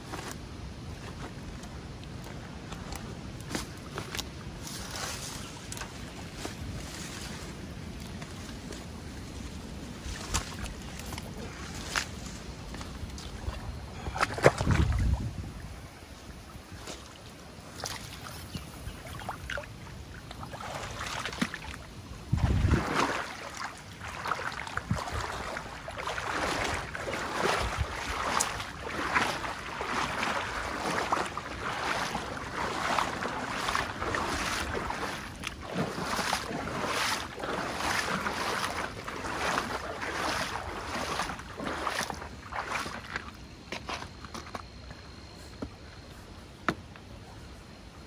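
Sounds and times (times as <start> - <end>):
wind rumbling on microphone: 0.0 - 43.6
water splashing and lapping: 0.0 - 46.3.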